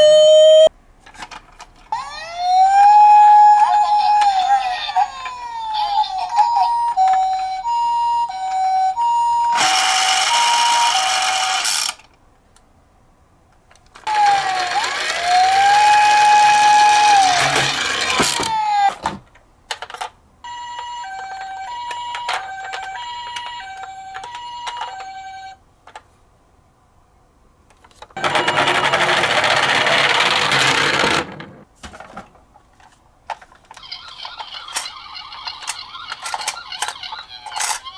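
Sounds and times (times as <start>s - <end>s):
toy two-tone siren: 0.0s - 0.7s, 1.9s - 11.9s, 14.1s - 19.0s, 20.5s - 25.6s, 28.2s - 29.3s, 33.8s - 37.9s
toy clicks: 9.6s - 12.2s, 33.7s - 37.9s
toy rolling on wooden board: 14.0s - 18.9s, 28.2s - 31.6s, 33.3s - 37.9s.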